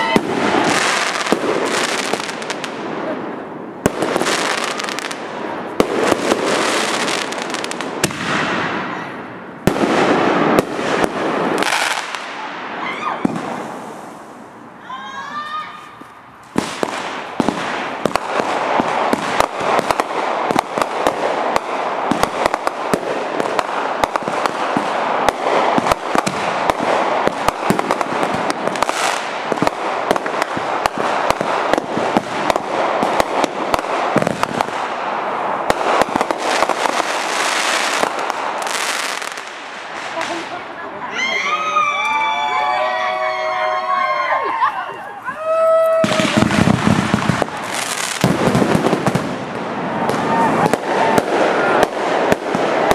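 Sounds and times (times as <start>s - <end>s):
fireworks crackling and banging: 0.0s - 52.9s
whistling firework: 3.8s - 14.2s, 45.2s - 52.9s.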